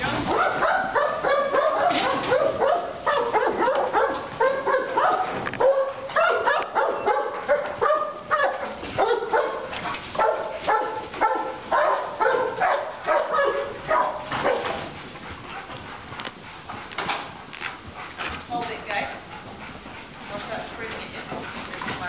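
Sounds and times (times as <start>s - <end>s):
dog barking: 0.3s - 14.8s.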